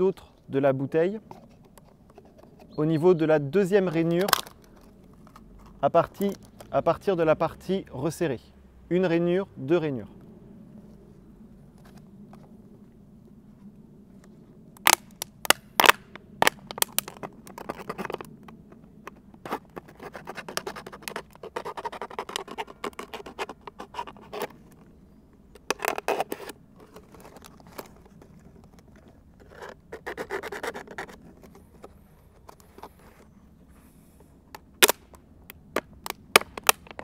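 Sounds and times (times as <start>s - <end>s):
scratching and scraping: 1.1s - 3.1s, 3.8s - 6.8s, 14.8s - 35.2s
plastic bottle clicks and crackles: 4.0s - 6.7s, 14.8s - 19.5s, 34.5s - 37.0s.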